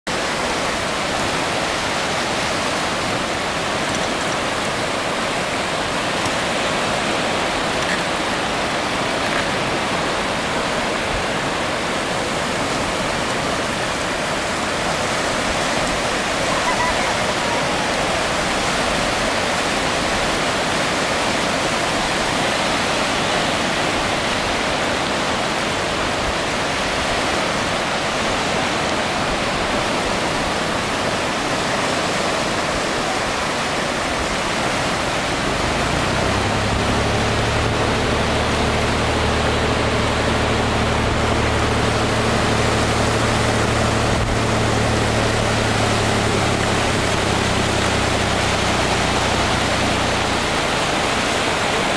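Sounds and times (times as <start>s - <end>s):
outboard motor idling: 0.1s - 51.9s
small waves breaking on beach: 0.1s - 51.9s.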